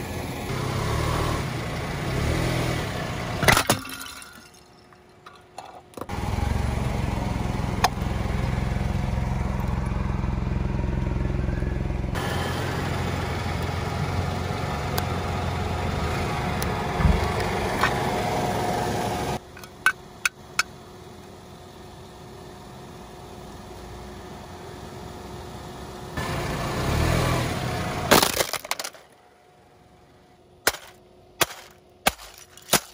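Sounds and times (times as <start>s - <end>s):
car engine rumble: 0.0s - 32.9s
loud sharp crack: 30.6s - 32.9s.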